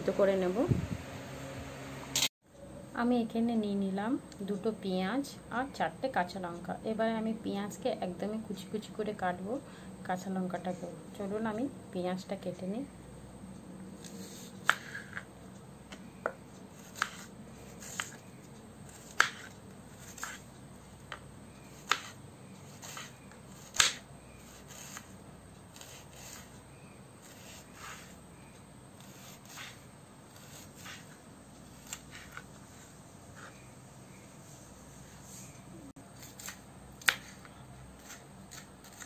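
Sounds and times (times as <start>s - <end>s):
knife chopping on plastic board: 15.9s - 18.2s, 18.9s - 20.4s, 21.8s - 22.2s, 22.8s - 24.0s, 36.2s - 39.0s.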